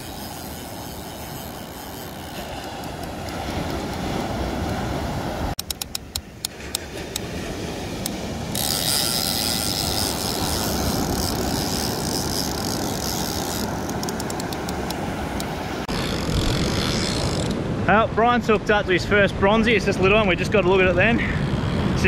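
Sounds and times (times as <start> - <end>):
sharp quick clicks: 5.6 - 7.3
surf rushing: 6.2 - 22.0.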